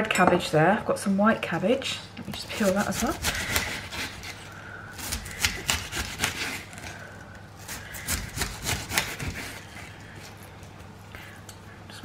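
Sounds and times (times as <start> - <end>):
knife slicing cabbage: 2.3 - 6.9, 7.6 - 10.0.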